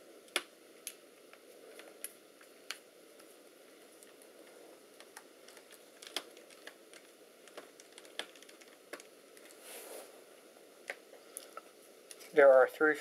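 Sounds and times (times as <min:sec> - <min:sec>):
soft rustle: 0:09.4 - 0:10.6.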